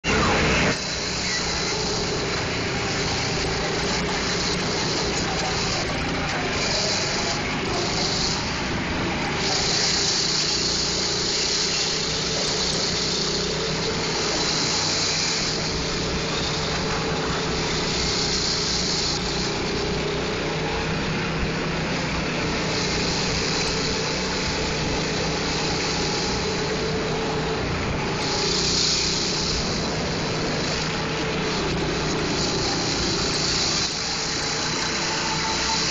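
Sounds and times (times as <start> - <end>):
go-kart engine running: 0.0 - 35.9.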